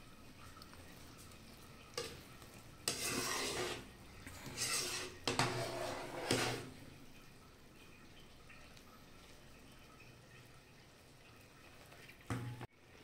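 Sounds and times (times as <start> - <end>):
spoon stirring boiling jam: 0.2 - 6.9.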